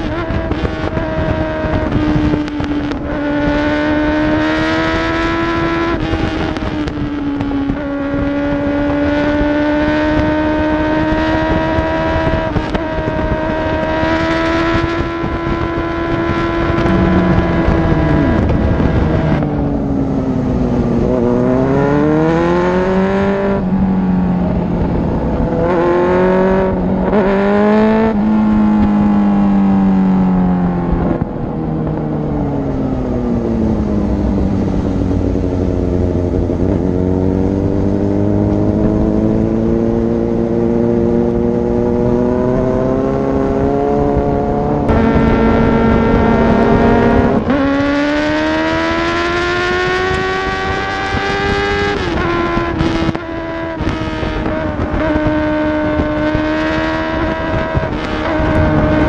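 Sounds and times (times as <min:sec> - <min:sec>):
motorcycle engine accelerating: 0:00.0 - 0:59.0.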